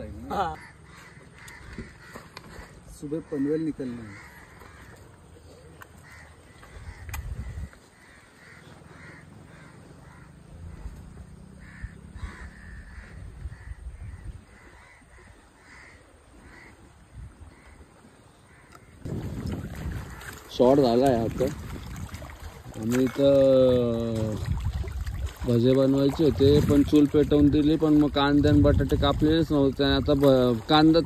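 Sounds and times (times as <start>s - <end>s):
crows cawing: 0.5s - 5.2s, 6.0s - 10.9s, 11.5s - 16.8s.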